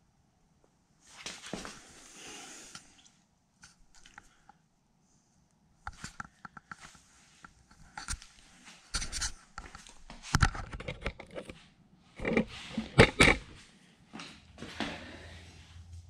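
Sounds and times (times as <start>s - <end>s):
rough scraping rub: 12.2s - 13.6s.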